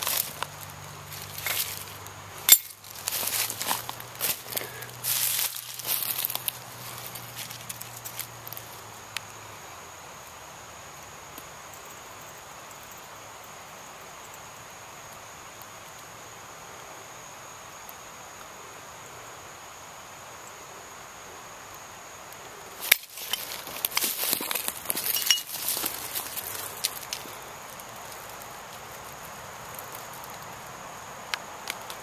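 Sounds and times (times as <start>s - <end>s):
rustling in dry leaves: 0.0s - 9.0s, 22.4s - 32.0s
crickets trilling: 0.0s - 32.0s.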